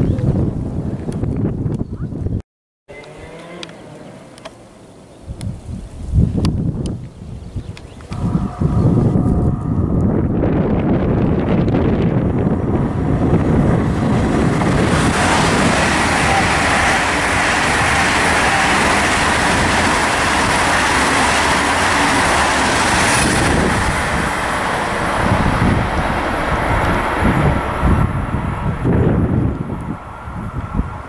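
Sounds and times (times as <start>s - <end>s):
train passing at speed: 8.1s - 31.0s.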